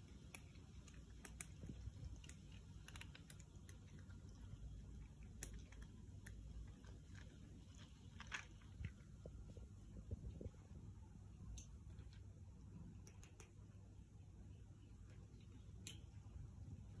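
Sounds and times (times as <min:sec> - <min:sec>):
cats chewing food: 0:00.0 - 0:10.7, 0:11.5 - 0:13.7
low steady rumble: 0:00.0 - 0:17.0.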